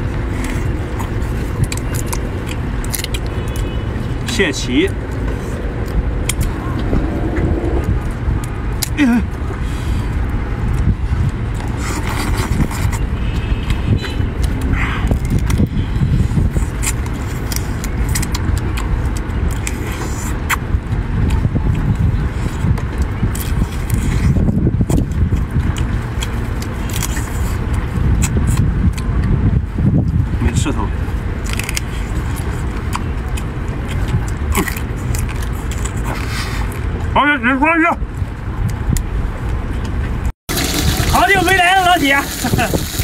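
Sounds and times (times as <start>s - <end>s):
wind buffeting microphone: 0.0s - 37.1s, 38.0s - 43.0s
crab shell cracking and chewing: 0.3s - 4.3s, 14.4s - 20.6s, 21.2s - 29.3s, 31.3s - 36.8s.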